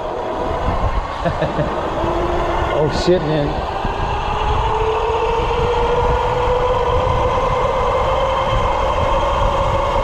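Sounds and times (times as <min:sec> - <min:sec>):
bike tyre whine on asphalt: 0:00.0 - 0:10.0
wind rumble on microphone: 0:00.0 - 0:10.0.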